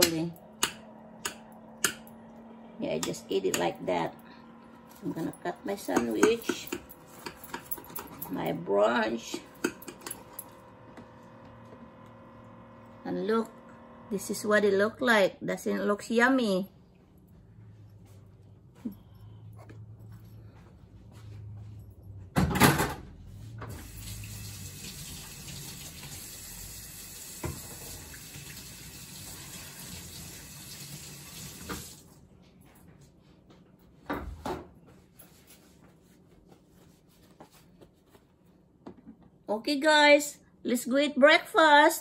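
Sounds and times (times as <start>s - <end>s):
tap water running into sink: 23.7s - 32.0s.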